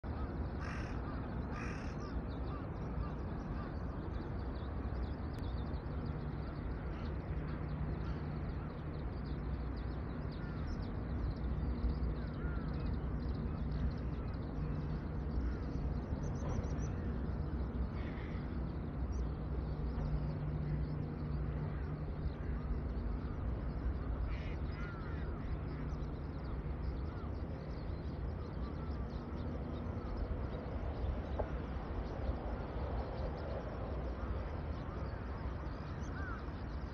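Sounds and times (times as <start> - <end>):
steady low rumble: 0.0 - 36.9
crows cawing: 0.6 - 2.1, 18.0 - 18.5, 24.2 - 25.9, 36.1 - 36.4.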